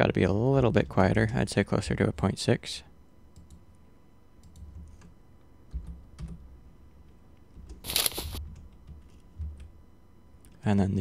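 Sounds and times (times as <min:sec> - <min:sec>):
footstep crunch: 0:07.9 - 0:08.4.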